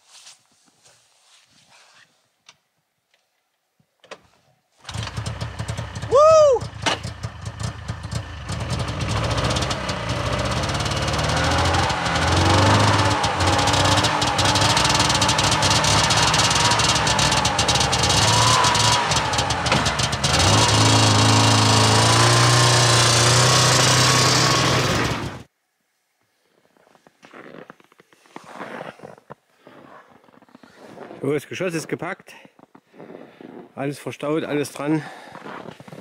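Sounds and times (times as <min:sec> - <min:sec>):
snowmobile engine running and revving: 0:04.9 - 0:25.5.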